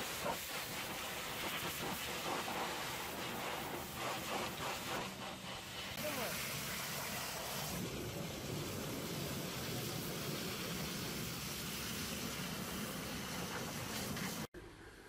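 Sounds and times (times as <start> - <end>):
pressure washer spray hissing: 0.0 - 14.5.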